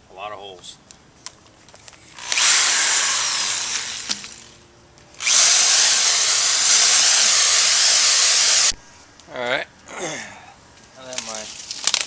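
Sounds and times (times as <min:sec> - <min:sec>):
electric drill boring through plastic pipe: 0:02.2 - 0:04.4, 0:05.2 - 0:08.8.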